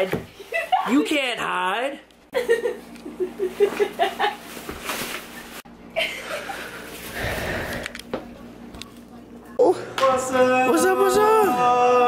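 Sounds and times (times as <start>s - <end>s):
person laughing in bursts: 2.3s - 4.4s, 5.9s - 6.9s.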